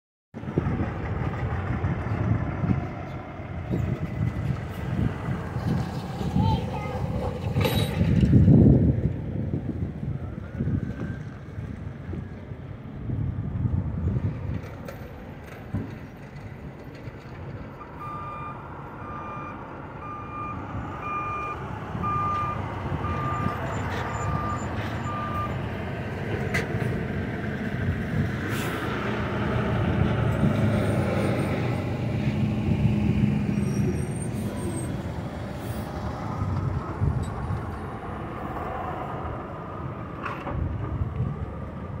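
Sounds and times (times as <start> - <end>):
trucks driving past: 0.4 - 42.0
backup alarm beeping: 17.8 - 25.6.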